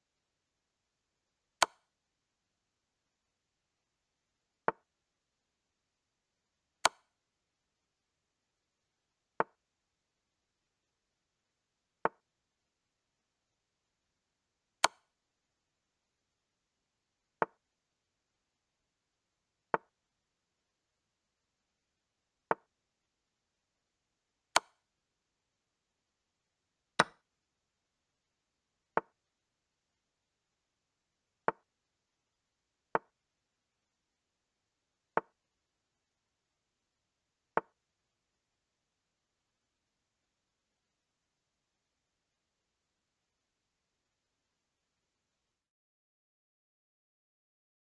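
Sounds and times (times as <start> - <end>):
chess piece move clicks: 6.8 - 7.1, 14.8 - 15.1, 24.6 - 24.8, 27.0 - 27.2.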